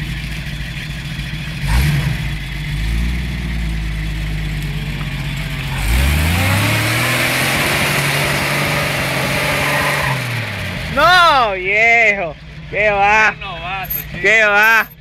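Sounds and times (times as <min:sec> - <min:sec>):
car engine pulling hard: 0:00.0 - 0:15.0.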